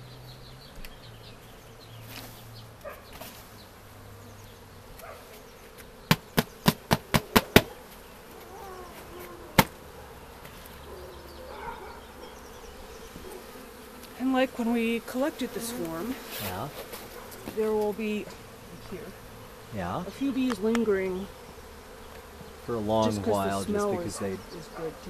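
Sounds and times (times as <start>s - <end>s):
bees buzzing: 0.0s - 25.0s
sharp knocks: 6.1s - 7.7s.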